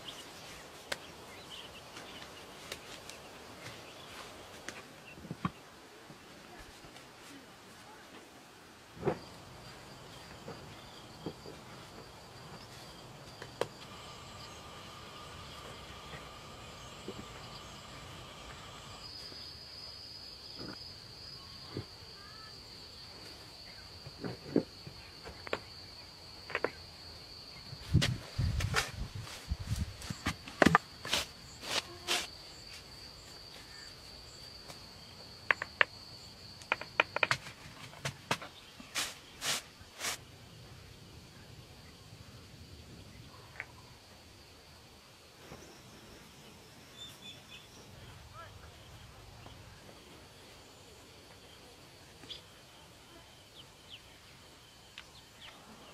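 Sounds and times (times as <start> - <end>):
insects calling: 0.0 - 5.8, 8.8 - 55.9
stones knocking set by hand: 35.4 - 36.0, 36.6 - 38.5.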